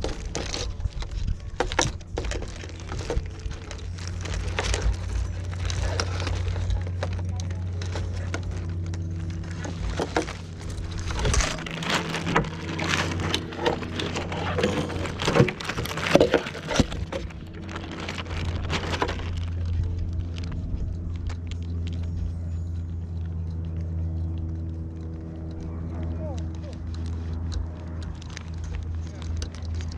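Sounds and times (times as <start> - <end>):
clicks taps and rustles: 0.0 - 22.2
steady low hum: 0.0 - 29.9.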